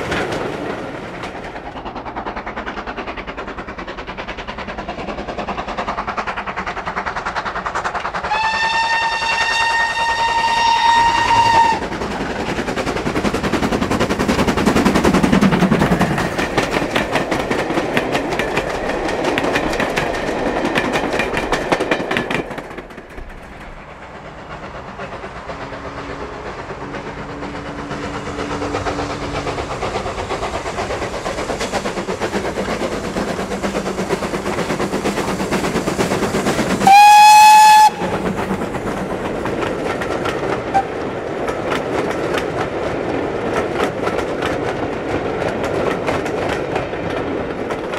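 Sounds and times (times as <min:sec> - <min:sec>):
steam locomotive exhaust beats: 0:00.0 - 0:47.9
train rail and wheel noise: 0:00.0 - 0:47.9
steam train whistle: 0:08.3 - 0:11.9, 0:36.8 - 0:38.2.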